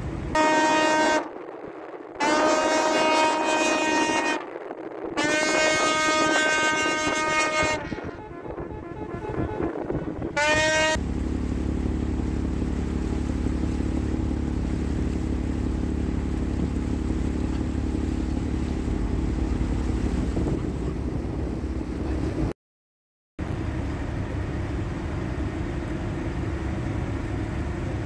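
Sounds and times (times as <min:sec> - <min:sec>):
ship's horn blast: 0:00.0 - 0:01.4, 0:02.2 - 0:04.6, 0:05.2 - 0:20.7
boat diesel engine droning: 0:05.2 - 0:22.5, 0:23.4 - 0:28.0.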